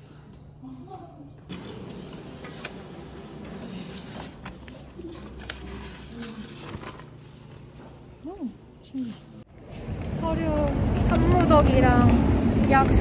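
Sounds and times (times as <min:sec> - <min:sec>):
indoor background hum: 0:00.0 - 0:13.0
paper rustling and crinkling: 0:02.4 - 0:08.5.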